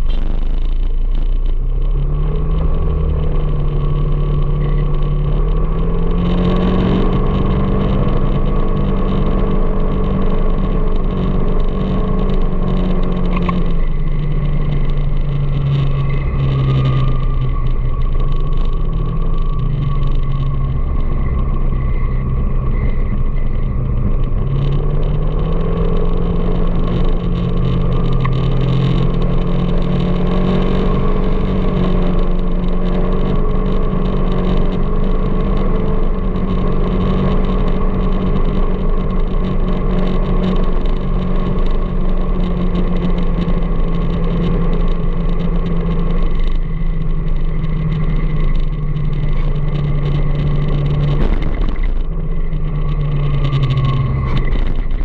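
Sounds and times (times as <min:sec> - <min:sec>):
road noise: 0:00.0 - 0:55.0
vehicle engine running: 0:00.0 - 0:55.0.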